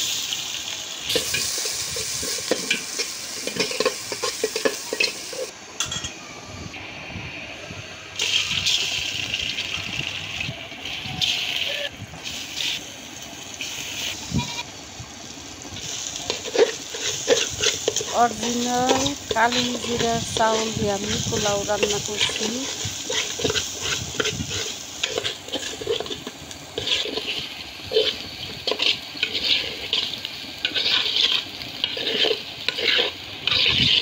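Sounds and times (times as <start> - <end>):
onion and spices sizzling in oil: 0.0 - 6.0, 6.7 - 34.0
metal spatula scraping pot: 1.1 - 6.1, 16.3 - 34.0.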